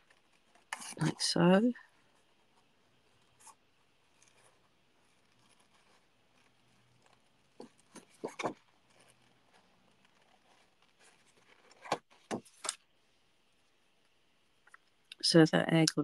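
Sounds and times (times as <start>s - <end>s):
paper rustling and tapping: 7.5s - 9.1s, 10.0s - 12.8s.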